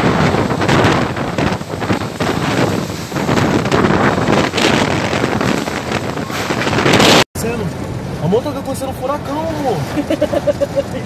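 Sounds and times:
storm wind gusting: 0.0 - 8.2.

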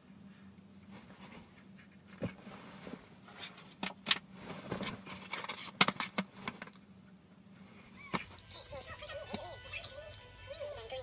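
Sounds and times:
faint steady hum: 0.0 - 11.0
bedding rustling: 0.9 - 5.6.

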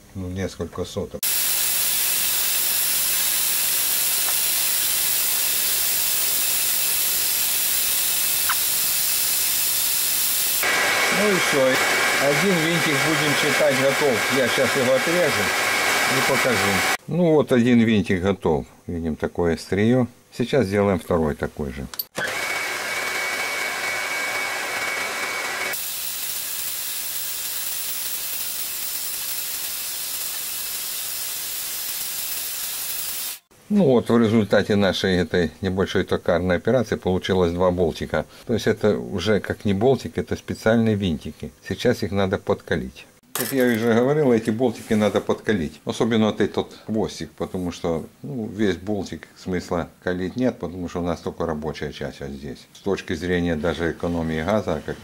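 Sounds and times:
metal lathe hissing: 1.2 - 17.0, 23.1 - 33.5.

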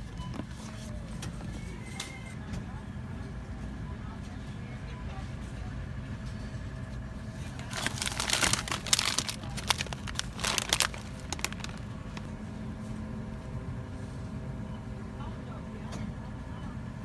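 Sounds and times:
plastic bag crinkling: 7.5 - 12.3.

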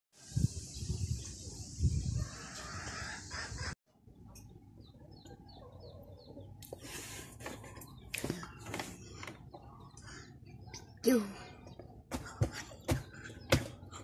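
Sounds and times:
chickens clucking and peeping: 0.8 - 10.9.

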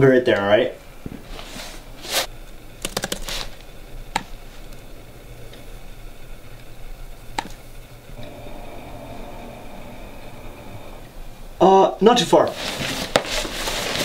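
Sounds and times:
laptop keyboard typing: 2.8 - 3.6.

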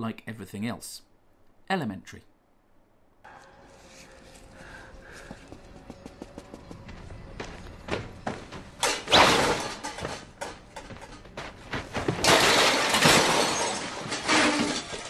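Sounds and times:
objects crashing onto floor: 8.8 - 15.0.

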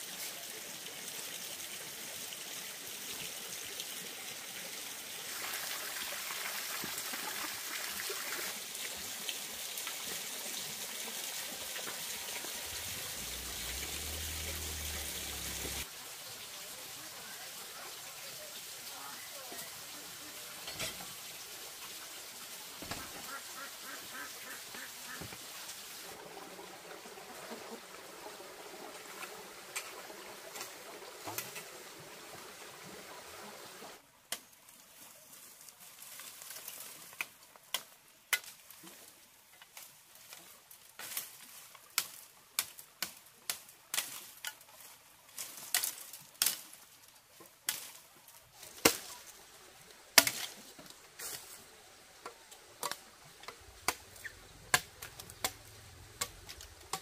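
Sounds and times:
dry leaves crackling: 34.7 - 57.0
machete chopping bamboo: 48.8 - 49.2, 50.2 - 50.6, 54.7 - 55.6.

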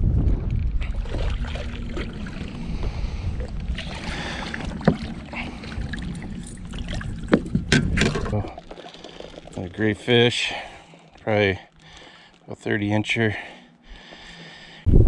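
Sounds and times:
low wind rumble: 0.0 - 8.7, 13.7 - 15.0
fish splashing in water: 0.9 - 10.0.

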